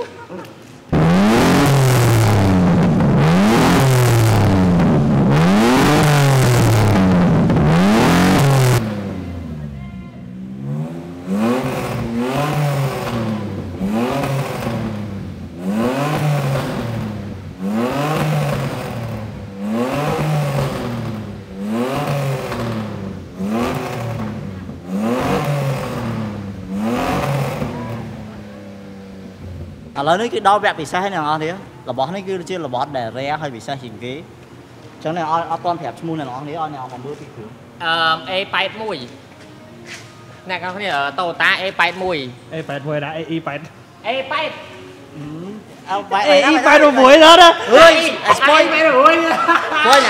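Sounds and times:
exhaust backfire crack: 0.9s - 30.3s
car engine revving: 0.9s - 31.6s.

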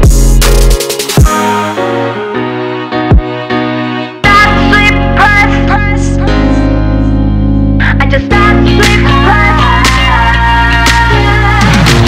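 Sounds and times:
low bass: 0.0s - 1.3s
sharp percussion hits: 0.0s - 1.8s
higher melody line: 0.0s - 11.8s.

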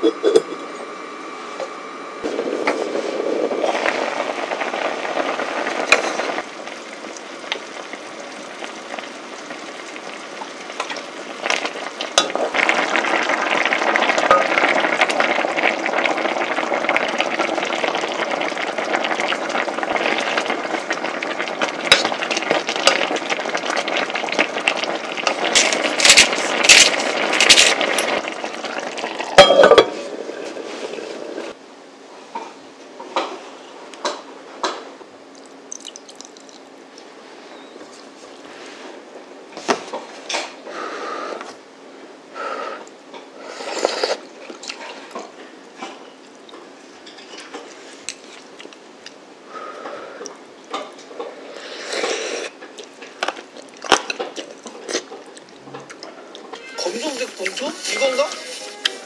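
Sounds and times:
porridge boiling in a pot: 0.1s - 59.0s.

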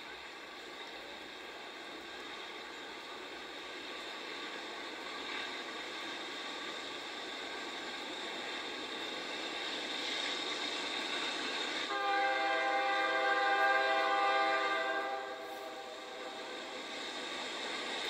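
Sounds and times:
freight train rumble: 0.0s - 18.0s
locomotive air horn: 11.9s - 16.2s.

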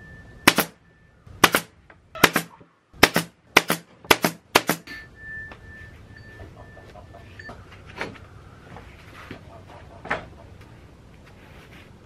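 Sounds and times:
nail gun firing: 0.5s - 0.8s, 1.4s - 4.9s.

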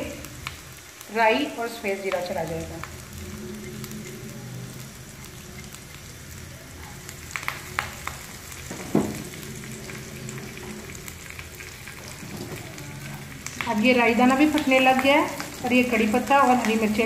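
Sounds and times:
oil sizzling in a frying pan: 0.0s - 17.0s
loud knock: 8.7s - 9.2s.

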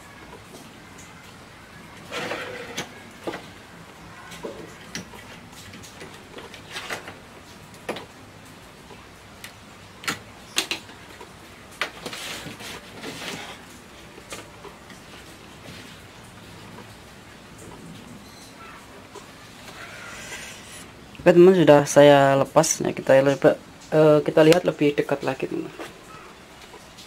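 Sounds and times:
scraping rustle: 2.1s - 3.0s, 12.0s - 13.8s, 19.3s - 21.0s.

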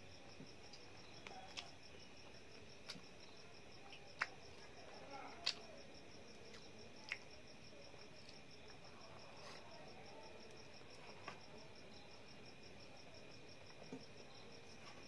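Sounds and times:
eating clicks and smacks: 0.7s - 1.7s, 3.8s - 4.7s, 5.4s - 5.7s, 6.4s - 7.3s.

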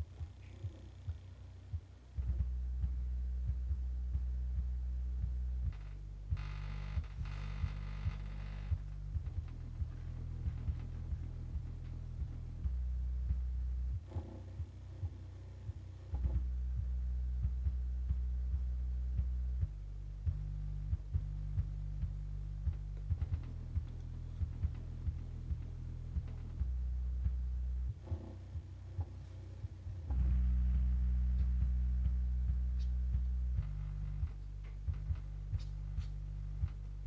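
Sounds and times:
deep bass test tones: 0.0s - 37.0s
regular bass thump: 0.0s - 37.0s
speaker buzz: 0.0s - 37.0s.

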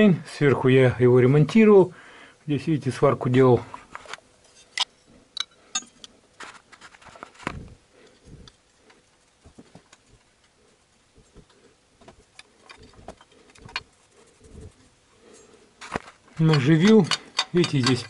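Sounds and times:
light metallic clicks and knocks: 11.2s - 13.9s, 15.9s - 18.0s.

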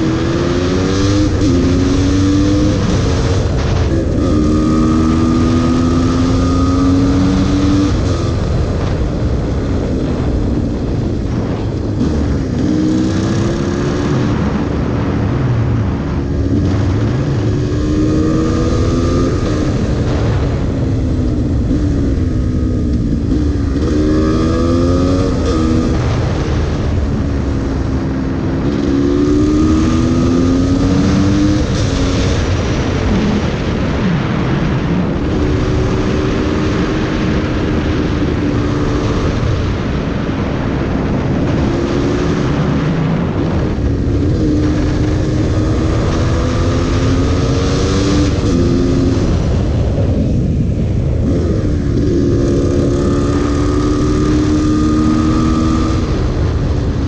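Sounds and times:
motorcycle engine revving: 0.0s - 57.0s
wind noise on microphone: 0.0s - 57.0s.

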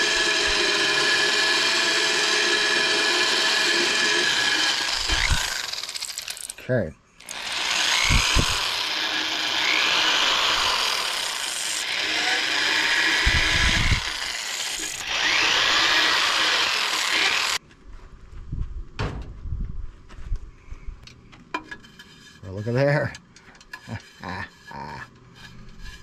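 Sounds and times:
electric drill grinding through clay: 0.0s - 6.6s, 7.2s - 17.6s.

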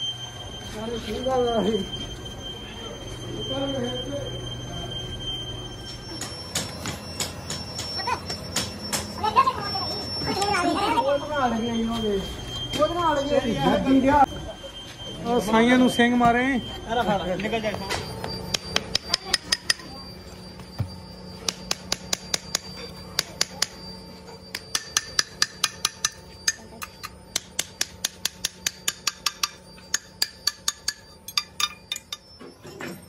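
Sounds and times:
hammer clinking on metal: 24.5s - 33.0s.

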